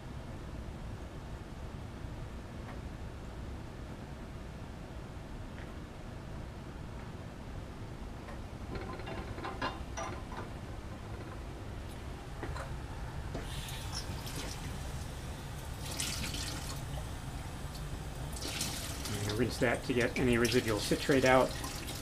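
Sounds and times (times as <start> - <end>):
glass clinking: 8.7 - 10.6
running water splashing on glassware: 13.4 - 22.0.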